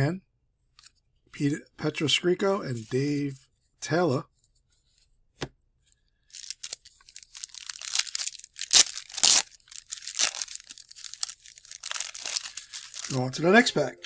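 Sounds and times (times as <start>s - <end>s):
wrapper tearing and crinkling: 6.3s - 13.4s.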